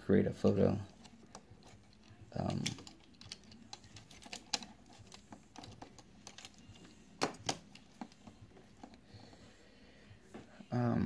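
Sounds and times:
plastic toy parts clicking: 0.9 - 9.0.

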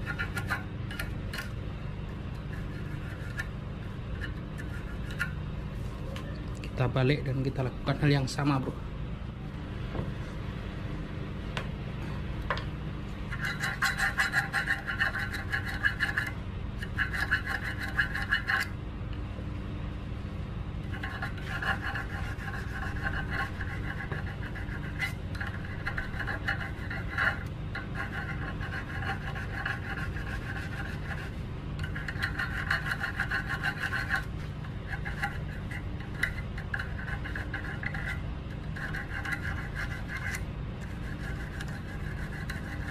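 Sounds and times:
file rasping on metal: 0.0 - 0.6, 13.3 - 18.7, 20.9 - 42.9.

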